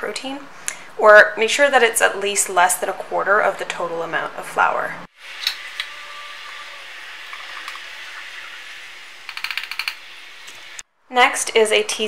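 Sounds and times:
room noise hiss: 5.0 - 12.0.

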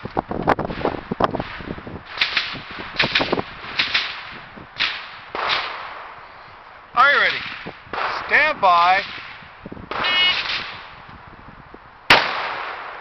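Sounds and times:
rifle shots: 0.7 - 6.2, 7.1 - 11.0, 12.1 - 13.0.

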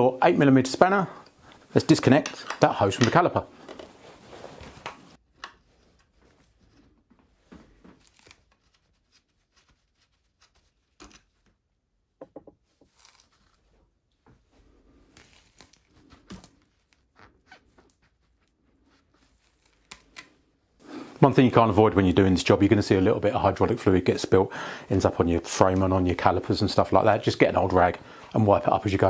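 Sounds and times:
clicks and rustles of hand work: 1.2 - 9.8, 10.4 - 11.6.

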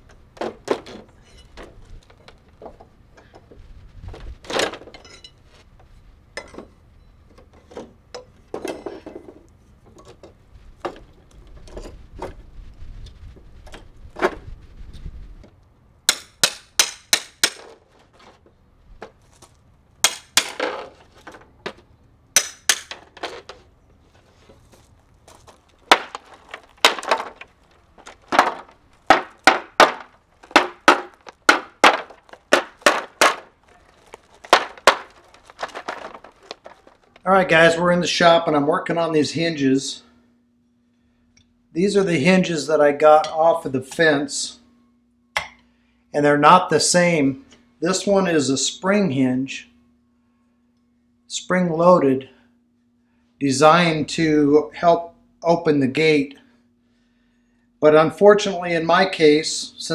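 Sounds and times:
hammer striking steel pry bar: 16.1 - 17.8, 20.0 - 20.9, 22.4 - 23.1, 28.3 - 33.5, 45.4 - 45.6
wood creaking: 22.6 - 37.8.

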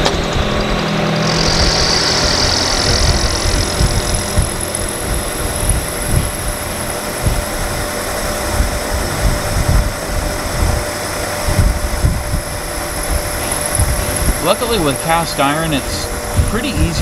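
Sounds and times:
low rumble of cutting metal: 0.0 - 17.0
milling machine humming: 0.0 - 17.0.

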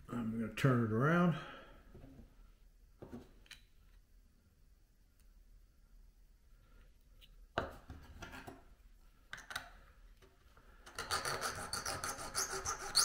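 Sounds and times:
file scraping metal: 11.0 - 13.0.

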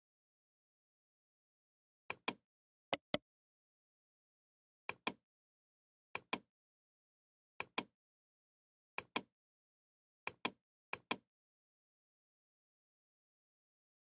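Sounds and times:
computer mouse button clicks: 3.0 - 3.2.

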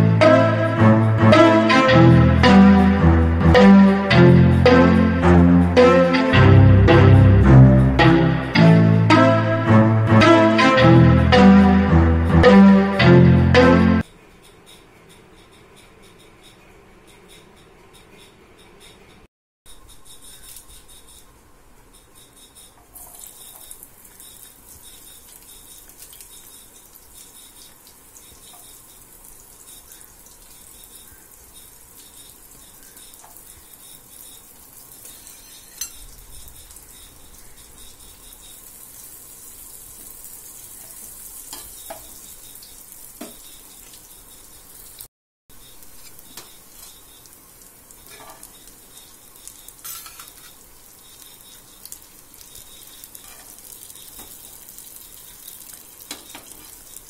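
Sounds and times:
onion sizzling in hot oil: 22.2 - 57.0
metal spoon scraping pan: 35.0 - 37.1, 49.8 - 50.6.

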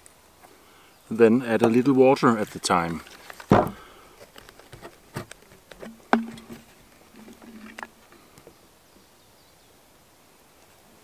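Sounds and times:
hands tapping leather flask: 4.5 - 7.9.

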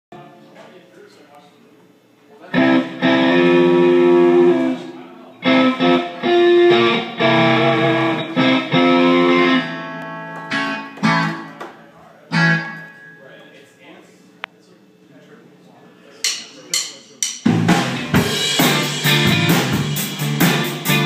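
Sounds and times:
electric guitar chords: 2.5 - 11.6, 12.3 - 13.1, 17.5 - 21.0.

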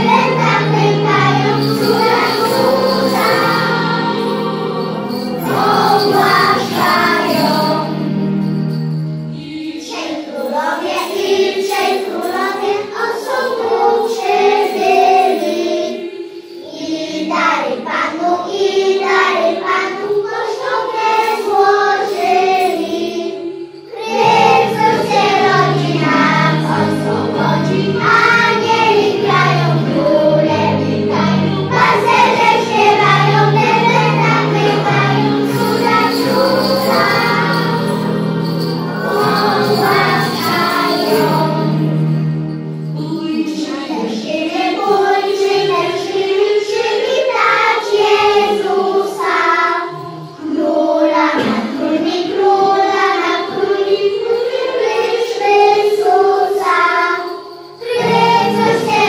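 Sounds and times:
children singing in unison: 0.0 - 8.2, 9.3 - 42.1, 43.0 - 59.0
instrumental accompaniment: 0.0 - 17.3, 20.1 - 51.5, 56.8 - 59.0.

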